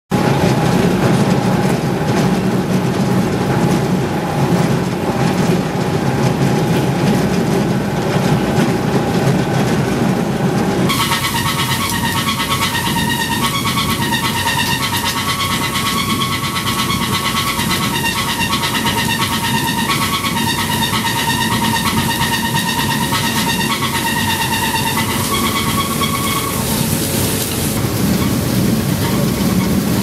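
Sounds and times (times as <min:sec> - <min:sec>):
shredder machine noise: 0:00.1 - 0:30.0
machine whining tones: 0:10.9 - 0:30.0.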